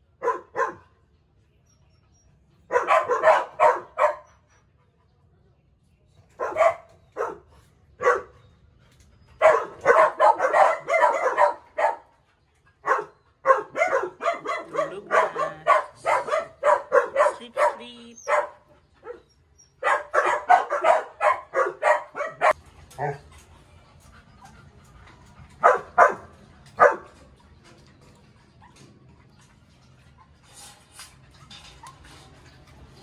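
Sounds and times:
puppies barking: 0.2 - 0.9, 2.7 - 4.4, 6.4 - 8.4, 9.4 - 23.4, 25.6 - 27.4.

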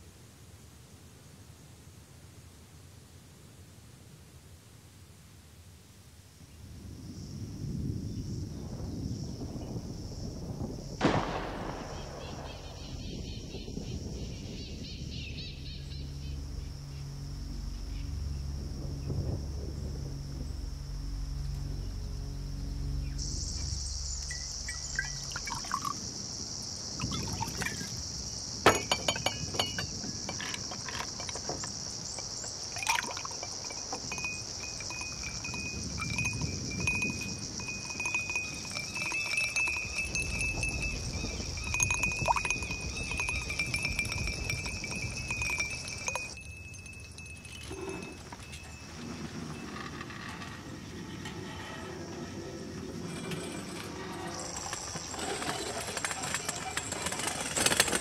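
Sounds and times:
high insect drone: 6.5 - 58.0
glasses clinking: 24.2 - 26.0, 28.7 - 50.2
wine pouring into glasses: 24.7 - 26.0, 27.0 - 27.9, 32.6 - 48.6.

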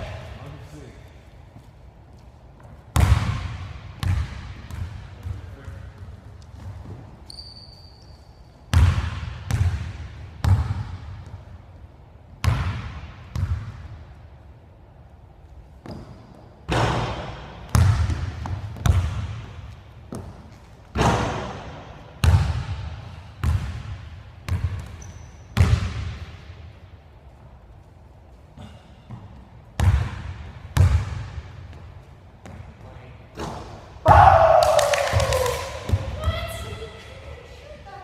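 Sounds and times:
basketball bouncing on wooden floor: 2.9 - 7.2, 8.7 - 11.4, 15.8 - 20.4, 23.4 - 26.2, 29.1 - 32.8, 35.9 - 36.6
high squeaks: 7.2 - 8.6.

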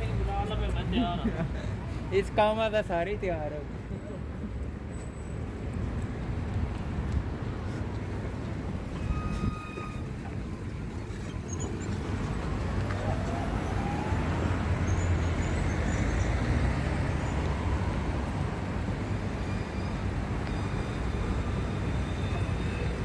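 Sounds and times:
traffic rumble: 0.0 - 23.0
thin high squeal: 8.9 - 10.3.

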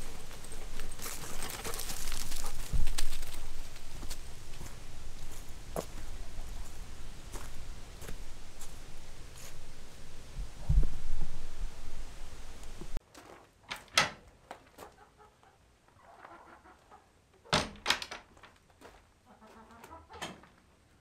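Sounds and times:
low rumbling noise: 0.0 - 13.0
chickens clucking: 14.7 - 17.5, 19.3 - 20.4.

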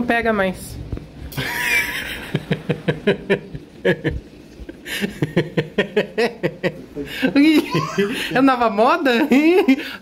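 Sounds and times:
person laughing: 1.3 - 8.4.

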